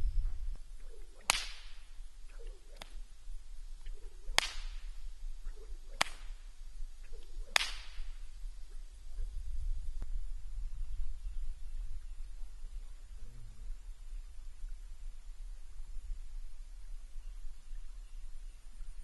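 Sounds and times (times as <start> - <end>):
whip swishing and cracking: 1.0 - 3.0, 4.3 - 6.5, 7.1 - 8.2.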